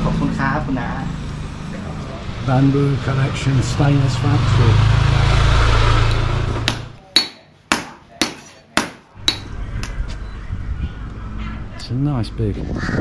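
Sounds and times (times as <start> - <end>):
motorbike passing: 0.0 - 7.0
hammer striking metal: 6.1 - 10.0.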